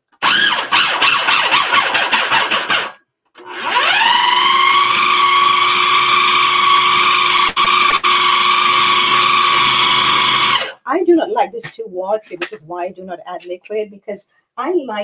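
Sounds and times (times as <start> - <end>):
food processor motor whining: 0.2 - 10.8.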